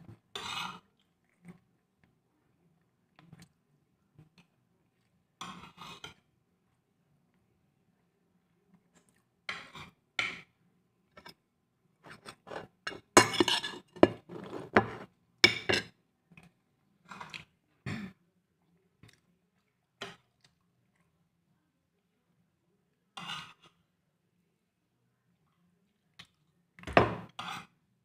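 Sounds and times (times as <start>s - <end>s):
plates clinking and clattering: 12.1s - 15.9s, 26.9s - 27.3s.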